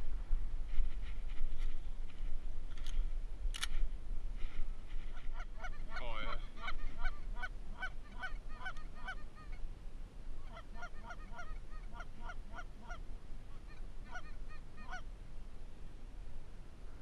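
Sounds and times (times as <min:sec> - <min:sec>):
goose honks and clucks: 0:05.1 - 0:09.6, 0:10.4 - 0:15.1.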